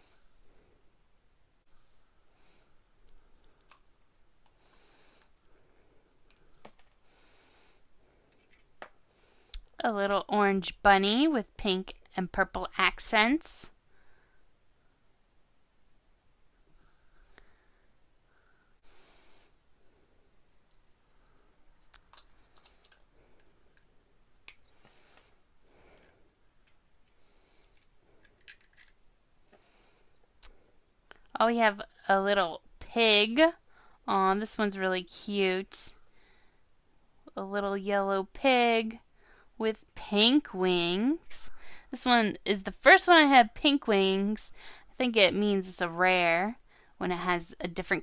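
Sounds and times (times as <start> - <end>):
soft hissing: 4.5 - 8.2, 16.6 - 21.6, 22.3 - 26.5
soft rustling: 19.2 - 27.9
toy egg shell cracking: 27.6 - 29.0.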